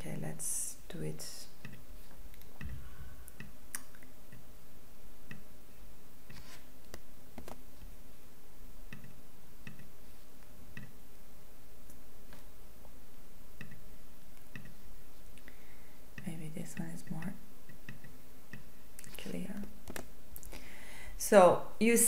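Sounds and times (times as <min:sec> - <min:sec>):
faint steady low hum: 0:00.0 - 0:22.0
computer mouse clicking: 0:13.6 - 0:13.8, 0:14.4 - 0:14.8.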